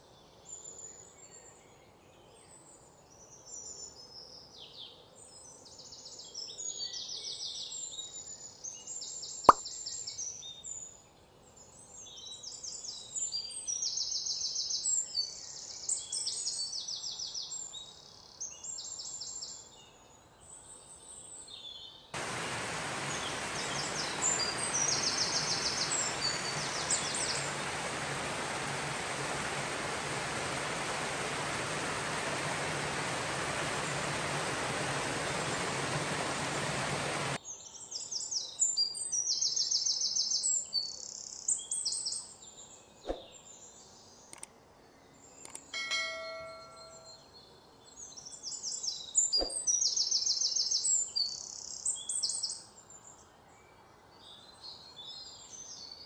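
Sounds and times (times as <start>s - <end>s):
small birds chirping: 21.3s - 44.5s
water splashing over ledge: 22.2s - 37.4s.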